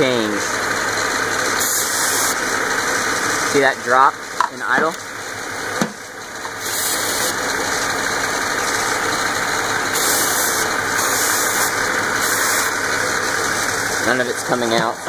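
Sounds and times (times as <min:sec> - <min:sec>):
car engine idling: 0:00.0 - 0:15.0
spray can hissing bursts: 0:01.6 - 0:02.4, 0:06.6 - 0:07.4, 0:09.9 - 0:13.0.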